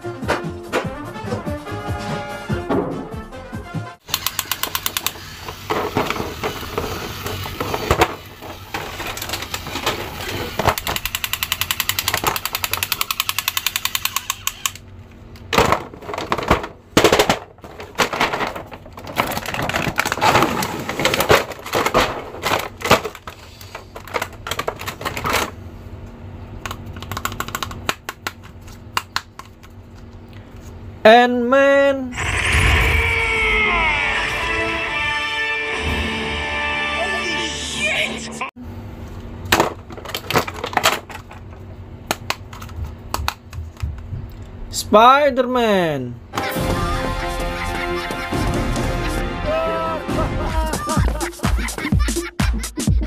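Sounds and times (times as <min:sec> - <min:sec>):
toy electronic machine-gun sound: 0:04.0 - 0:08.2, 0:10.4 - 0:14.8
plastic clatter and rustling: 0:05.4 - 0:11.1, 0:15.4 - 0:25.6, 0:39.5 - 0:44.1.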